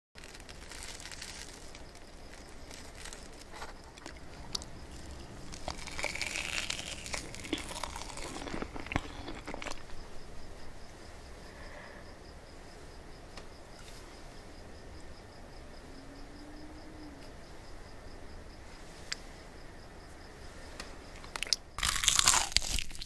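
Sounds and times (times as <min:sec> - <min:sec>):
chewing with mouth clicks: 0:03.9 - 0:10.0.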